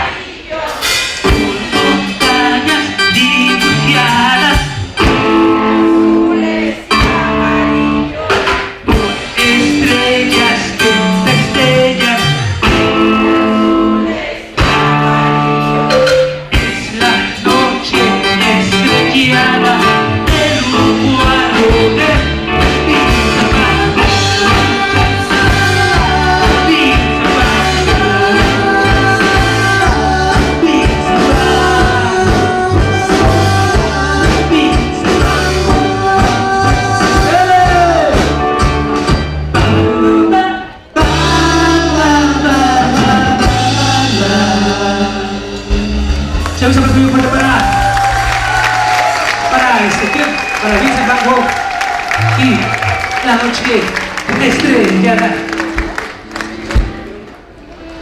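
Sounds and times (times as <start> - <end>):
person singing: 0.0 - 38.6, 39.5 - 46.0
live rock band playing: 0.0 - 58.0.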